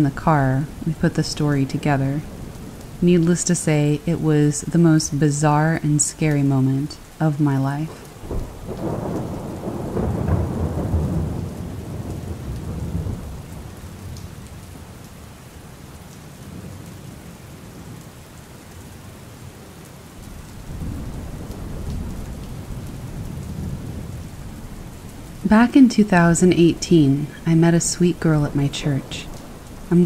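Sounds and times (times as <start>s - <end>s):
steady rain: 0.0s - 30.0s
rolling thunder: 0.7s - 3.2s, 7.8s - 14.9s, 20.2s - 27.4s, 28.0s - 29.9s.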